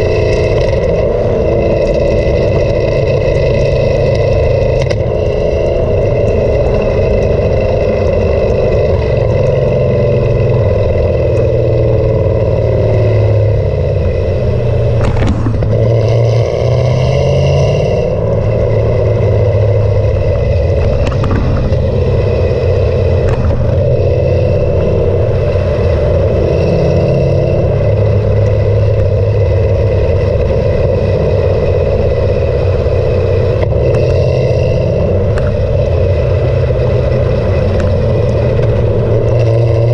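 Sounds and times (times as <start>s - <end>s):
car exhaust droning: 0.0s - 39.9s.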